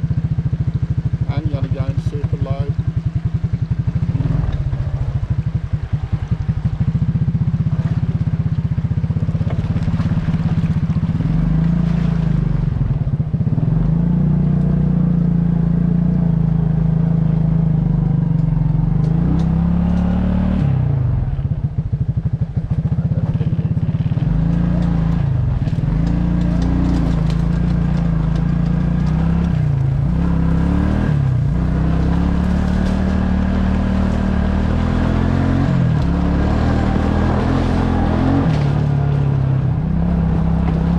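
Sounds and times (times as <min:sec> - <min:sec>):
quad bike engine pulling under load: 0:07.5 - 0:15.0, 0:22.2 - 0:40.9.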